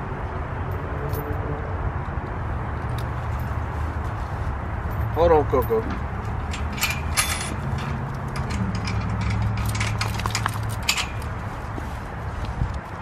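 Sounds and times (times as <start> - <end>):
leash and collar hardware rattling: 4.8 - 11.5
metal gate clinks and rattles: 4.9 - 11.4.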